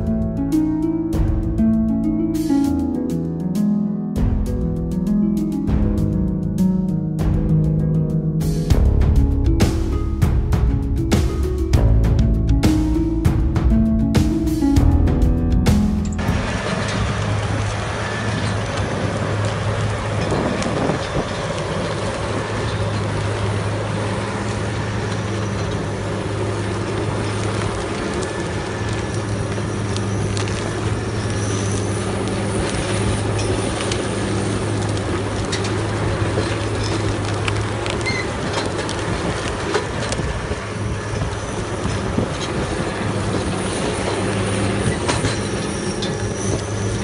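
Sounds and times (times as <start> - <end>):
wood crackling and crunching: 8.7 - 47.0
wood-processing machine humming: 15.8 - 47.0.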